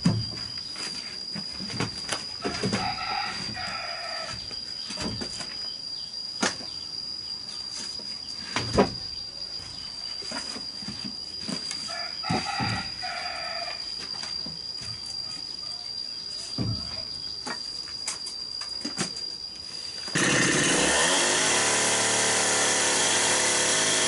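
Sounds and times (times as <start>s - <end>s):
rooster crowing: 2.4s - 4.4s, 11.9s - 13.9s.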